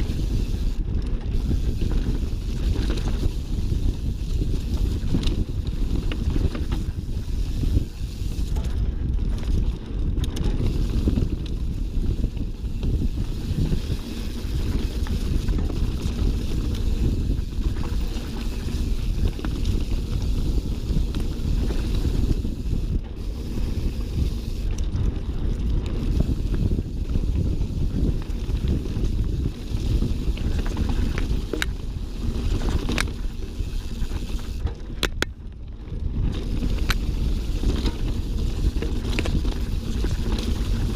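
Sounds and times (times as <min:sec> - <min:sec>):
bike clicks and rattles: 0:00.0 - 0:40.9
tyre roar on dirt trail: 0:00.0 - 0:40.9
wind buffeting microphone: 0:00.0 - 0:40.9.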